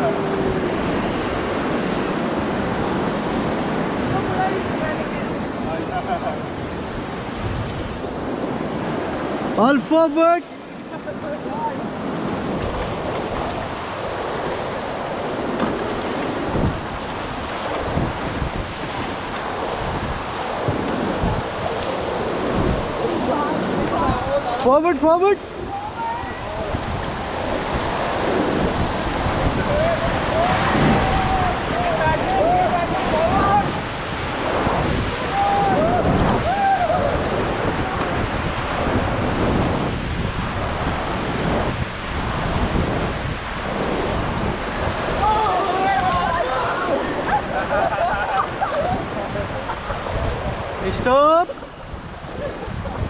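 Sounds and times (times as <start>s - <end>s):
river water rushing: 0.0s - 53.0s
wind buffeting microphone: 0.0s - 53.0s
paddle strokes splashing: 11.9s - 24.0s.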